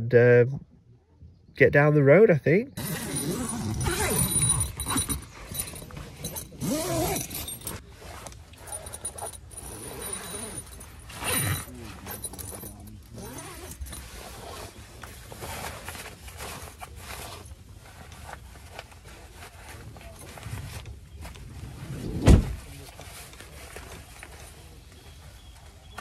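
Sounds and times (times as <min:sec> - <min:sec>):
zip clicks: 0:02.8 - 0:07.8
tent nylon rustling: 0:02.8 - 0:26.0
thump: 0:22.0 - 0:22.7.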